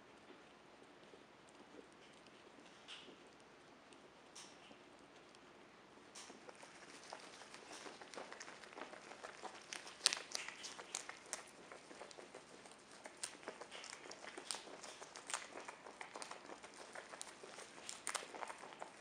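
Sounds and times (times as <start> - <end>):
animal chewing leaves: 6.1 - 19.0.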